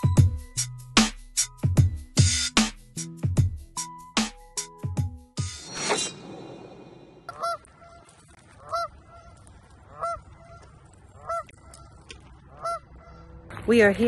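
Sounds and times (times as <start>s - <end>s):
falling swish: 5.6s - 7.3s
goose honking: 7.3s - 13.4s.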